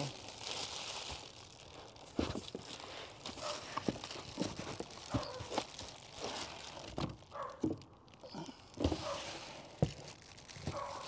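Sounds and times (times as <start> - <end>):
plastic bag crinkling: 0.0 - 11.0
knocks and scrapes on cardboard: 8.8 - 10.0.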